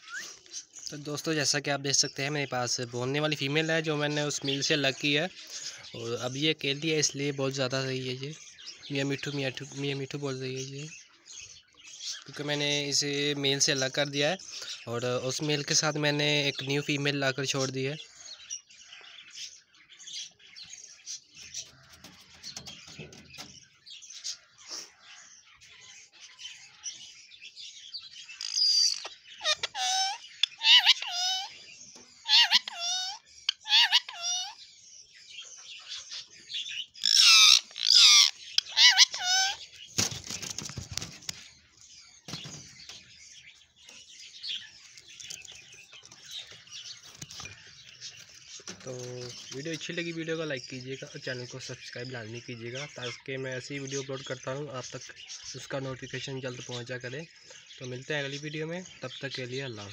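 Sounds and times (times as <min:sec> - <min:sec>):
parakeets chirping: 0:00.0 - 0:59.9
wing flutters and rustling: 0:21.4 - 0:23.9, 0:39.8 - 0:41.6, 0:42.2 - 0:43.2, 0:44.9 - 0:49.8
parakeet squawking: 0:28.3 - 0:34.7, 0:35.5 - 0:39.9.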